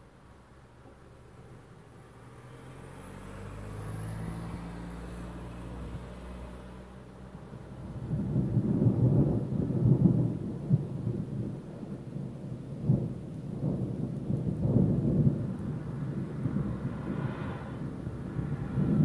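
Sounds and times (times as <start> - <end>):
thunder rumbling: 7.4 - 19.0
thunder cracks: 8.0 - 19.0.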